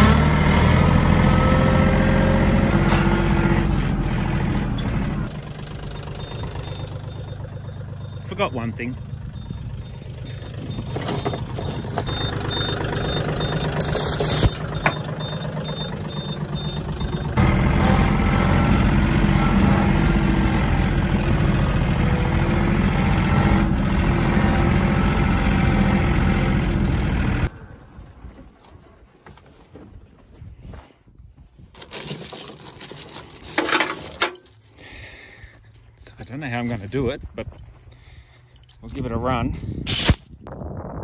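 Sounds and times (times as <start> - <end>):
tractor diesel engine running: 0.0 - 29.4, 31.6 - 40.1
vehicle engine idling: 3.7 - 28.6.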